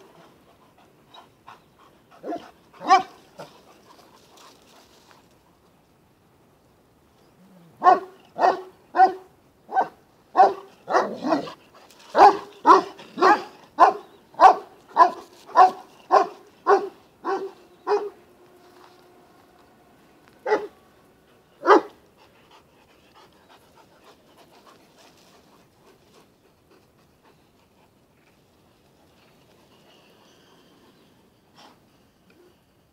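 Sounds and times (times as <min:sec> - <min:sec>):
dog barking: 0:02.2 - 0:03.2, 0:07.8 - 0:11.6, 0:12.2 - 0:18.2, 0:20.4 - 0:20.8, 0:21.6 - 0:22.0.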